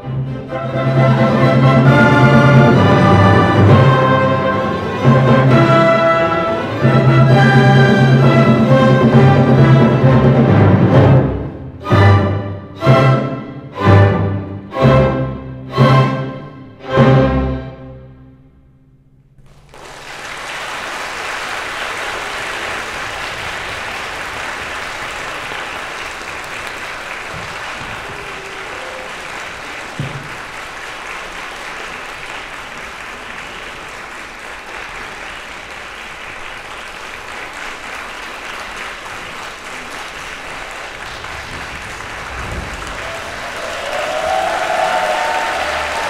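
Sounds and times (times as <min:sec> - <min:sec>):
audience applauding: 0:19.4 - 0:46.0.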